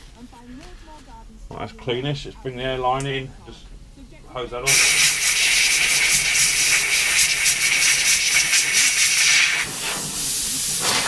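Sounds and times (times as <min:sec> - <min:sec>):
compressed air hissing: 0:04.7 - 0:11.0.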